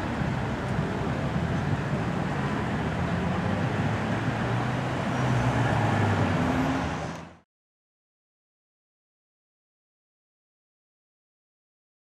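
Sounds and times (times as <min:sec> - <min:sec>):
car engines running: 0:00.0 - 0:07.4
vehicle accelerating: 0:00.0 - 0:07.4.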